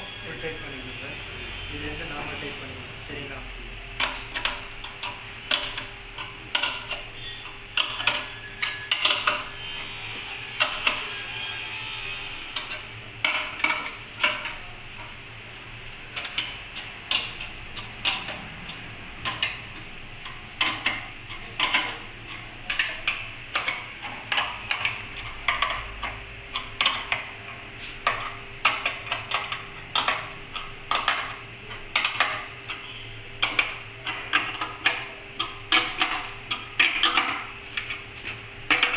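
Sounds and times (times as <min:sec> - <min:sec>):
metallic clicks and knocks: 0:03.9 - 0:09.6, 0:16.1 - 0:38.9.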